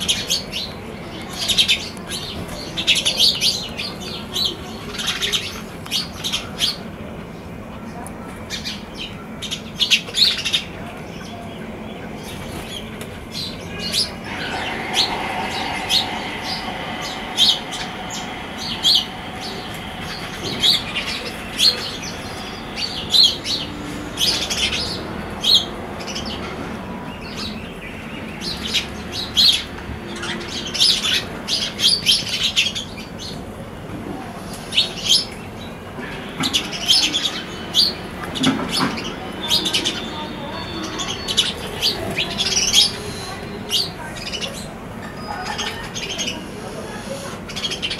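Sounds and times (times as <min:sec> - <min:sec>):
faint steady hum: 0:14.1 - 0:25.0.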